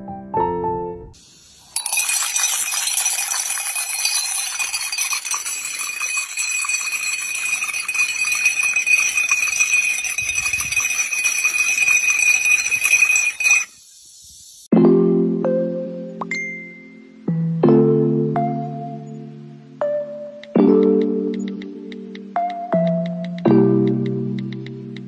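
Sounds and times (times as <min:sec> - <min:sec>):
glasses clinking and ringing: 0:01.8 - 0:13.8
high ringing tone: 0:01.8 - 0:13.8.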